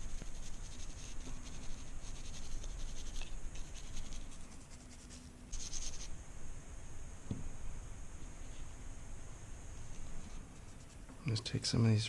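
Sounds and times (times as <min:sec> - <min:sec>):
toothbrush scrubbing metal: 0:00.0 - 0:06.1.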